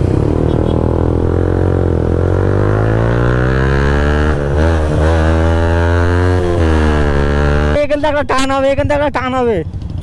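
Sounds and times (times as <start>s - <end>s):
motorcycle engine accelerating: 0.0s - 8.0s.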